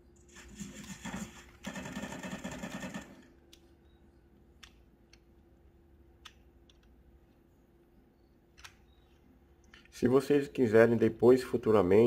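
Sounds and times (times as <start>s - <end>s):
faint room hum: 0.0s - 12.0s.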